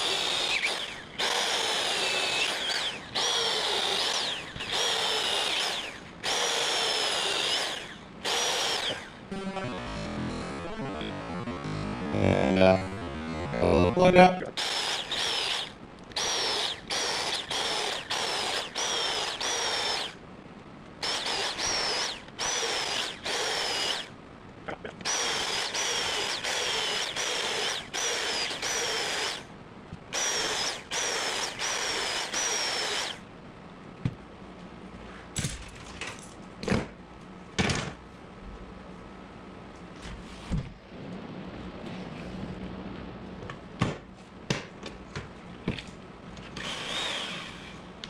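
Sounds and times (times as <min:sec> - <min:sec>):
electric drill whining: 0:00.0 - 0:12.2, 0:14.6 - 0:20.2, 0:21.0 - 0:24.1, 0:25.0 - 0:29.5, 0:30.1 - 0:33.2, 0:46.6 - 0:47.9.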